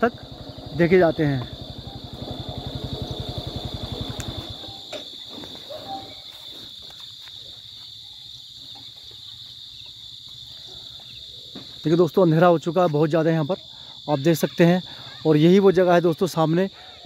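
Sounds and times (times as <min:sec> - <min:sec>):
vehicle engine idling: 0:00.0 - 0:04.9
crickets chirring: 0:00.0 - 0:17.0.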